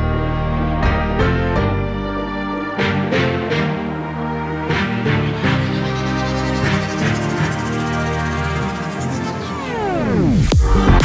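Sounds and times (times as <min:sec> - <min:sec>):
sustained electronic chords: 0:00.0 - 0:11.0
falling pitch sweep: 0:02.5 - 0:11.0.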